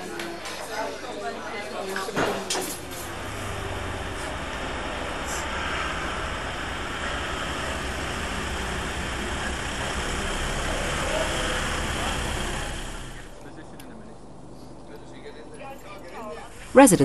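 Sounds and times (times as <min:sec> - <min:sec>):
street noise: 0:00.0 - 0:17.0
vehicle engine running: 0:02.6 - 0:13.4.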